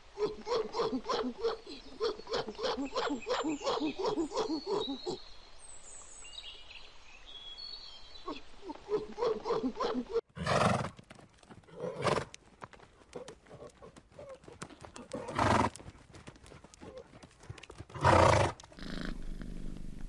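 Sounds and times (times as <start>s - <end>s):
horses neighing: 9.0s - 10.9s, 11.7s - 12.3s, 13.1s - 15.8s, 17.9s - 20.0s.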